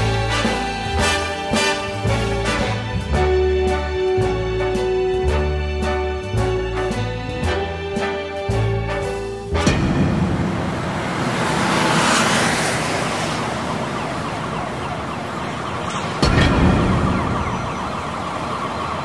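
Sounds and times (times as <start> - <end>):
music track: 0.0 - 11.7
city street traffic: 0.0 - 19.0
siren: 10.7 - 19.0.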